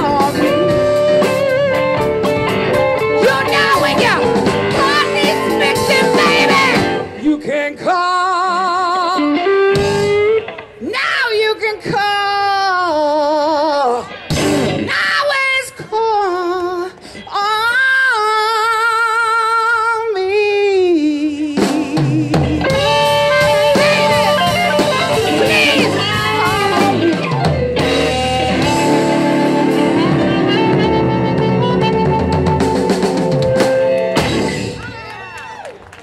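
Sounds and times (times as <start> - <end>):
lead guitar sliding notes: 0.0 - 7.2, 22.6 - 34.7
blues band playing: 0.0 - 13.1, 13.7 - 15.9, 21.2 - 35.2.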